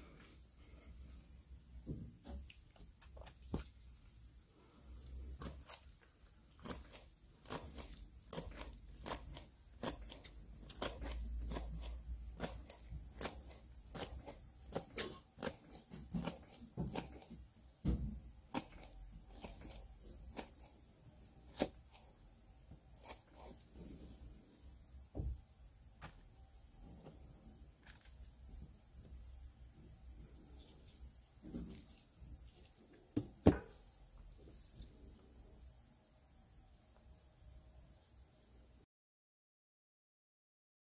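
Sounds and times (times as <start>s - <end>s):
knife slicing onion on board: 6.6s - 17.5s, 18.4s - 20.8s, 21.4s - 22.0s.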